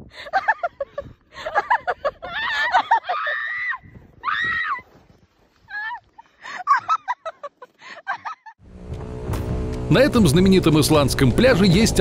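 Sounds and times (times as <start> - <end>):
woman screaming: 2.2 - 4.9.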